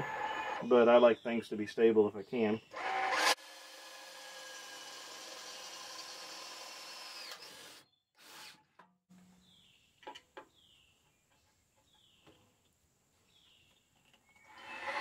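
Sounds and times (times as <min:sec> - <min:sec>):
cordless drill boring through metal: 0:02.7 - 0:08.6, 0:14.4 - 0:15.0.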